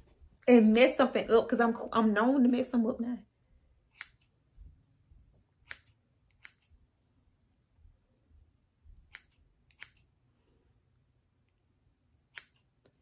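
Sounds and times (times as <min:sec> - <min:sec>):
scissors snipping hair: 0:00.6 - 0:01.1, 0:03.9 - 0:04.4, 0:05.6 - 0:06.8, 0:09.0 - 0:10.1, 0:12.3 - 0:13.0.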